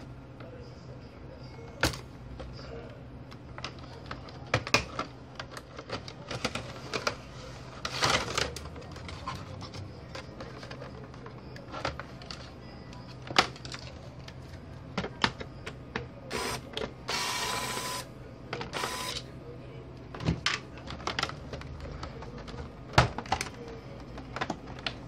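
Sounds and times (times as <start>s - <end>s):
powered screwdriver whirring: 16.3s - 18.0s, 18.8s - 19.2s.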